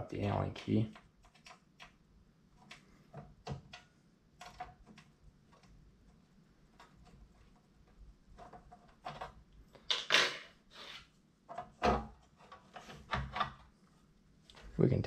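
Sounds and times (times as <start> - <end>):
loud scrape: 10.1 - 11.1.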